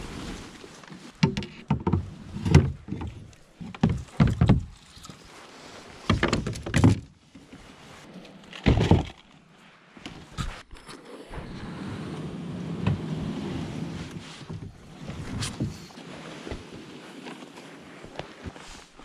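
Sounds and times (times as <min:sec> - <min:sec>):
leaves rustling: 0:00.0 - 0:01.2, 0:04.6 - 0:06.6
kayak hull knocking and scraping: 0:00.0 - 0:19.0.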